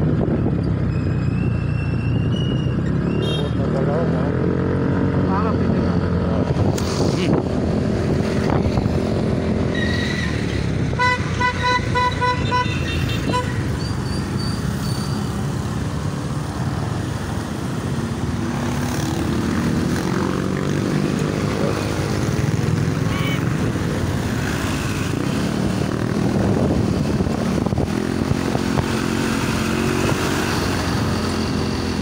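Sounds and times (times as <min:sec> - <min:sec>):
car horns tooting: 0:10.9 - 0:14.5, 0:23.0 - 0:23.6.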